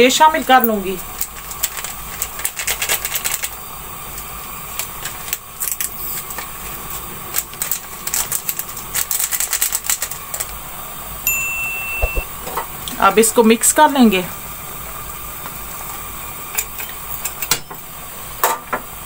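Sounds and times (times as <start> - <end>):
steady hiss: 0.0 - 19.0
pot of water crackling and popping: 0.4 - 11.2, 12.2 - 19.0
high beep: 11.3 - 12.3.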